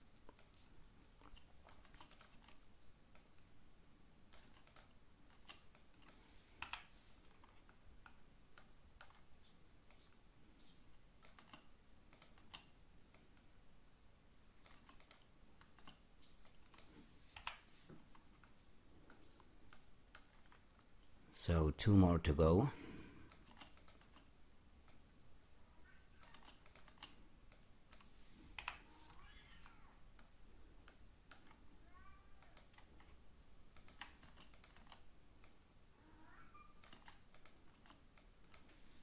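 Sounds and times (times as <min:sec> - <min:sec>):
computer mouse clicking: 0:00.2 - 0:03.4, 0:04.3 - 0:13.5, 0:14.6 - 0:21.1, 0:23.3 - 0:25.0, 0:26.2 - 0:28.8, 0:29.6 - 0:31.6, 0:32.4 - 0:35.6, 0:36.8 - 0:38.8.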